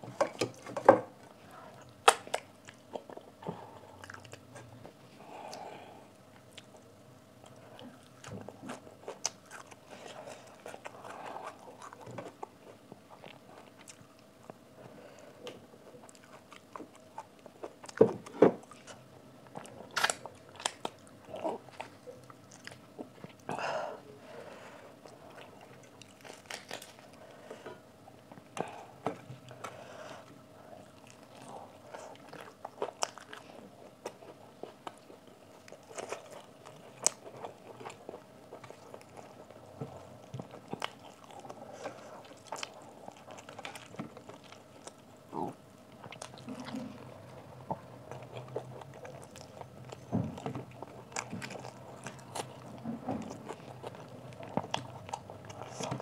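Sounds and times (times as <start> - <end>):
person chewing and biting: 7.5 - 14.6, 15.9 - 23.5, 25.0 - 27.2, 30.7 - 56.0.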